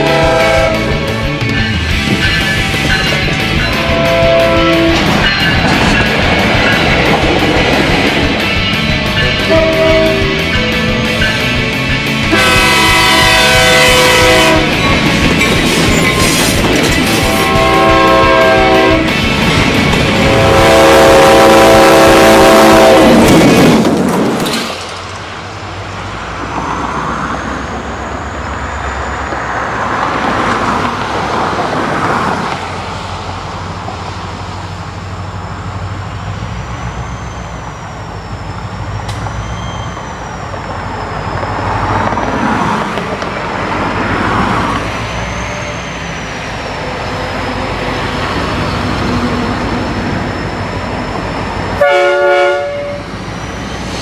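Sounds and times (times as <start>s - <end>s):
loud air horn blast: 0.0s - 1.1s, 3.8s - 5.1s, 9.4s - 10.4s, 12.3s - 14.8s, 17.1s - 19.1s, 20.1s - 23.3s, 51.8s - 53.1s
passing vehicle noise: 23.2s - 51.8s.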